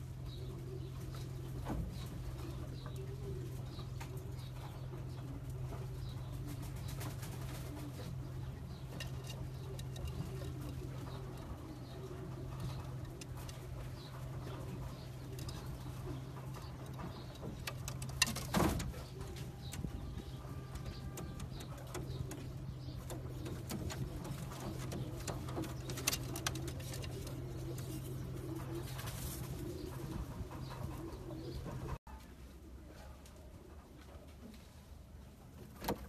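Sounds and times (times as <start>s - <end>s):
pigeons cooing: 0.0s - 32.0s
steady low hum: 0.0s - 32.0s.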